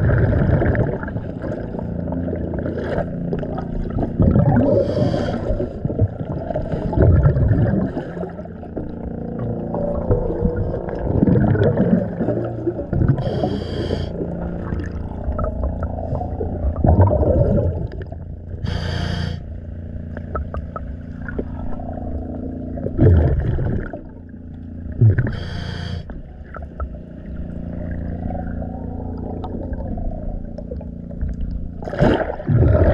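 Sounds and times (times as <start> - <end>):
steady low hum: 0.0 - 32.9
scuba regulator bubbles hissing: 4.2 - 8.4, 10.2 - 19.4, 25.0 - 26.1.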